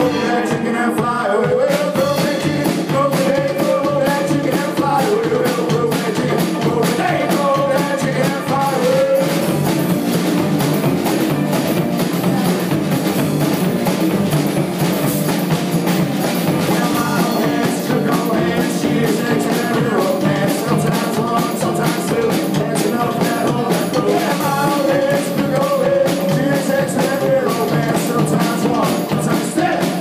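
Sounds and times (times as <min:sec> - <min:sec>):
man singing: 0:00.0 - 0:09.6, 0:16.6 - 0:30.0
live rock and roll band: 0:00.0 - 0:30.0.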